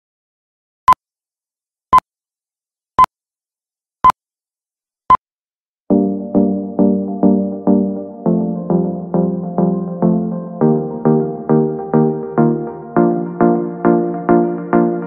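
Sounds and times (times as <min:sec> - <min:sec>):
music with sustained notes: 0:05.9 - 0:15.0.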